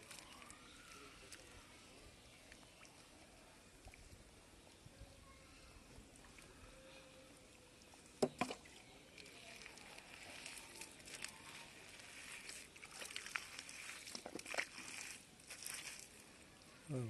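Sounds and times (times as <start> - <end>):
hands squelching through wet mud: 0.0 - 1.6, 8.6 - 16.6
small crackling squelches: 0.0 - 3.2, 7.8 - 16.8.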